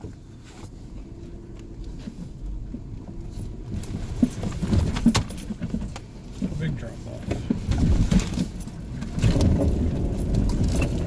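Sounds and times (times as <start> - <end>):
low engine rumble: 0.0 - 11.0
tyres and suspension clunking: 0.0 - 11.0.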